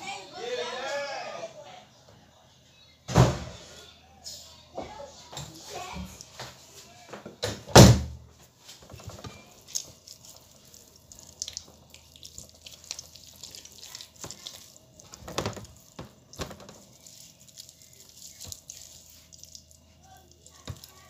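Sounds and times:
wet squelches of handling chicken: 8.5 - 21.0.

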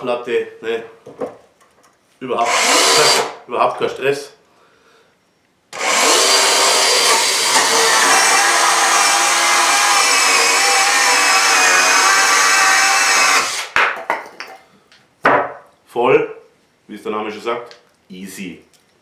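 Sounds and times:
power saw cutting wood: 2.4 - 3.4, 5.8 - 13.8.

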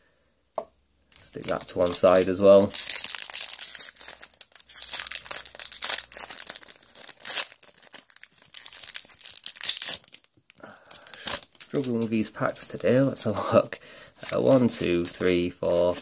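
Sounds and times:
foil wrapper crinkling and tearing: 1.1 - 12.0.

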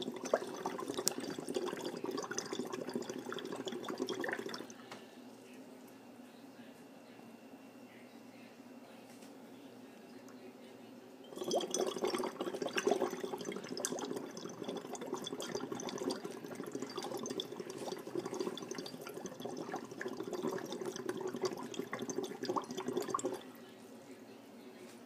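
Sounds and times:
bubbling through straw in water: 0.0 - 4.7, 11.2 - 23.5.

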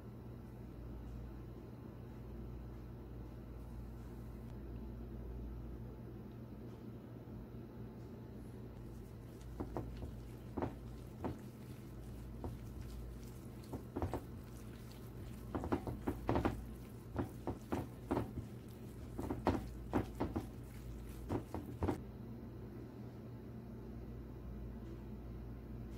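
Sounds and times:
squelching of marinated chicken: 8.7 - 22.0.

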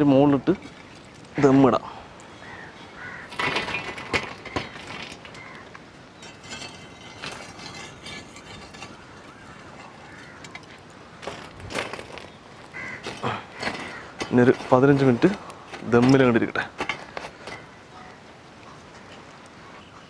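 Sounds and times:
charcoal clattering on metal lid: 3.2 - 17.8.

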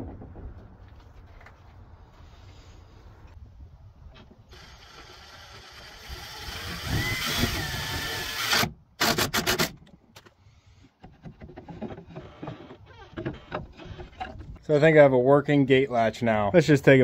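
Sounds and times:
cordless driver motor whining: 4.5 - 8.7
light wooden clicks and knocks: 9.8 - 14.6.

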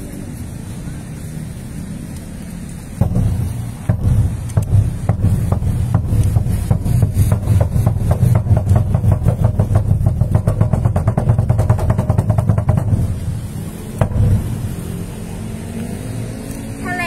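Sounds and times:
large drum beaten with sticks: 3.0 - 15.0
single loud drum stroke: 14.0 - 14.7.

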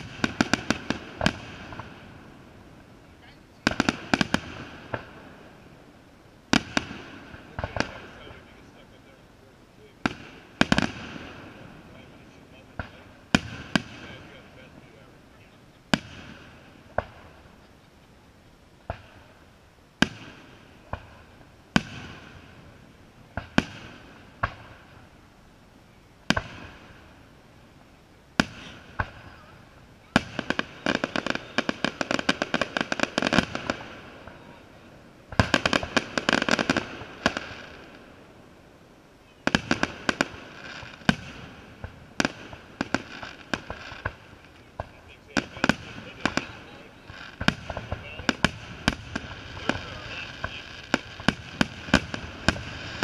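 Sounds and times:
dense rapid firework crackling: 0.0 - 53.0
firework shells bursting: 35.2 - 38.1, 39.5 - 53.0.

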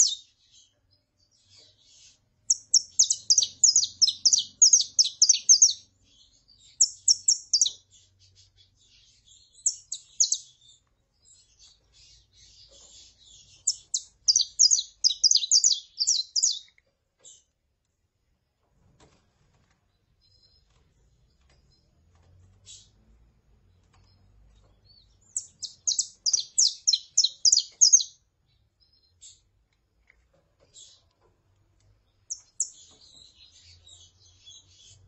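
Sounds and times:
finch chirping: 0.0 - 17.5, 22.6 - 23.0, 23.9 - 29.5, 30.6 - 31.1, 32.0 - 35.0.

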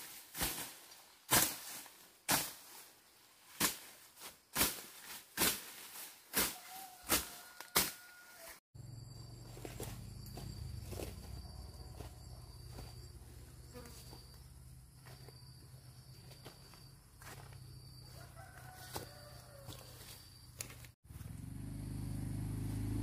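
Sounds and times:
high insect trill: 6.6 - 23.0.

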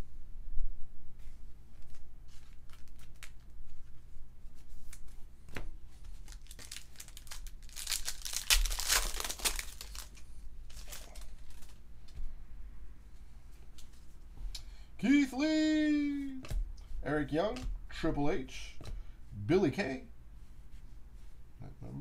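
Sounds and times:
cards and packs handled: 1.7 - 12.2
foil wrapper tearing and crinkling: 2.4 - 3.5, 6.1 - 11.8.

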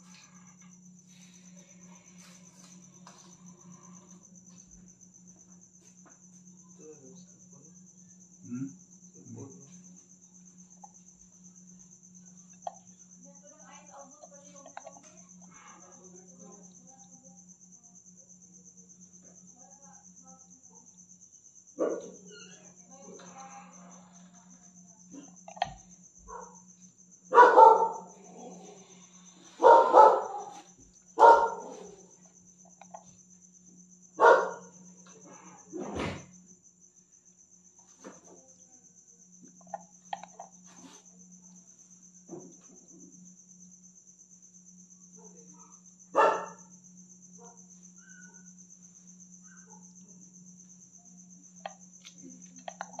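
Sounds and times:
crickets chirring: 0.0 - 53.0
dog barking: 21.8 - 22.3, 26.3 - 26.6, 27.3 - 28.7, 29.6 - 30.6, 31.2 - 32.0, 34.2 - 34.8, 45.6 - 46.7.

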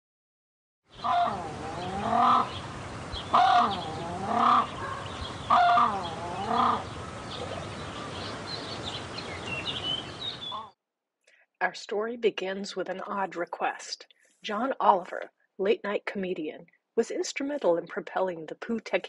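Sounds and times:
grebes calling: 1.0 - 10.7.

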